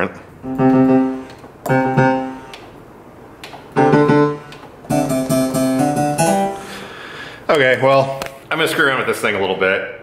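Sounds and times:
speaker fuzz: 0.4s - 2.8s, 3.7s - 7.1s
piano chords ringing: 0.4s - 2.9s, 3.7s - 7.0s.

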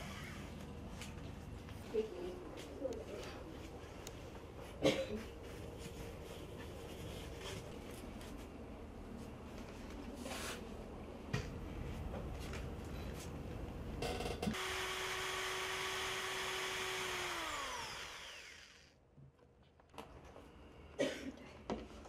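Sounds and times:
cordless drill boring: 14.5s - 19.0s.

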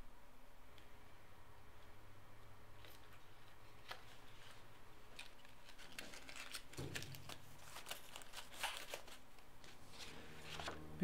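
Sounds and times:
low room hum: 0.0s - 11.0s
small objects clicking and rustling: 5.1s - 9.2s.

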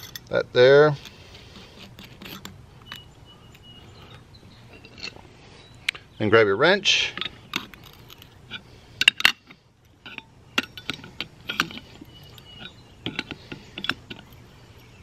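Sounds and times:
wrench clinking on steel nut: 0.0s - 0.3s, 1.8s - 3.7s, 7.2s - 15.0s.

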